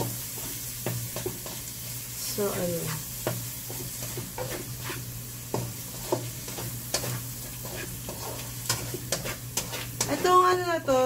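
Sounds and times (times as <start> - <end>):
spatula scraping and knocking pan: 0.0 - 1.8, 2.5 - 10.6
food sizzling in a pan: 0.0 - 11.0.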